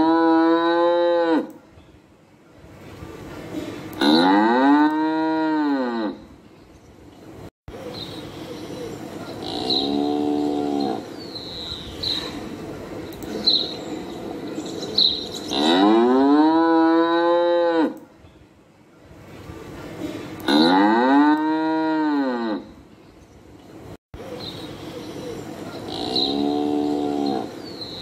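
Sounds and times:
cow mooing: 0:00.0 - 0:01.5, 0:04.0 - 0:06.2, 0:09.4 - 0:11.1, 0:15.5 - 0:18.0, 0:20.5 - 0:22.7, 0:25.9 - 0:27.6.

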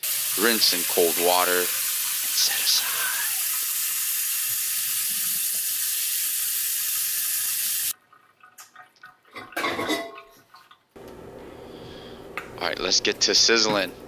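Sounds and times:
tap water running over noodles: 0:00.0 - 0:09.2.

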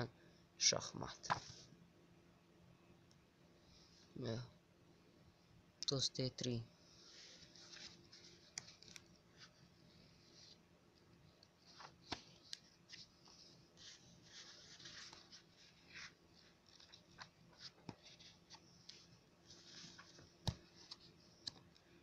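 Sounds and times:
paper pages rustling: 0:01.2 - 0:01.7, 0:07.0 - 0:10.6, 0:11.3 - 0:21.9.

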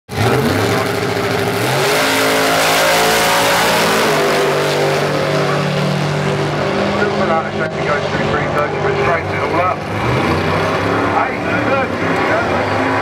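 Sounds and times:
drag racing engines at full throttle: 0:00.1 - 0:13.0.

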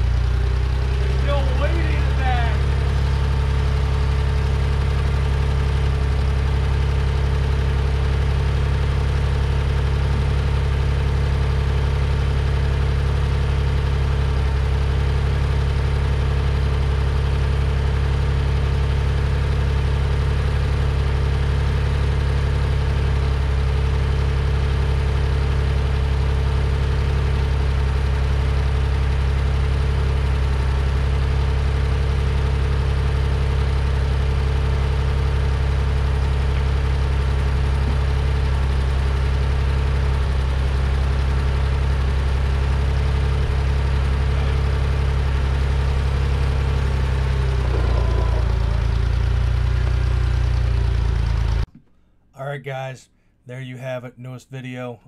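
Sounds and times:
tractor engine idling: 0:00.0 - 0:52.9.

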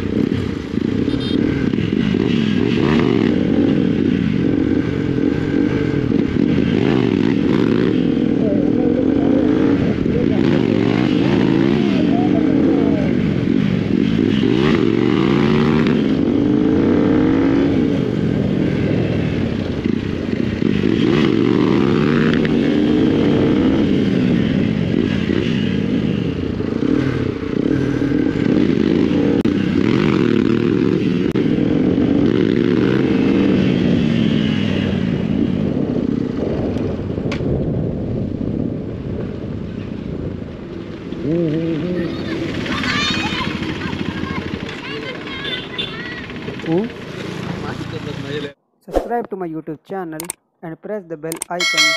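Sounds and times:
motorcycle engine revving: 0:00.0 - 0:49.0.

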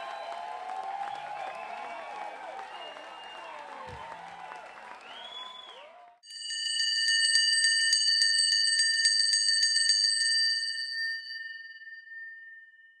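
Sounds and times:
small metal bell ringing: 0:06.2 - 0:13.0.

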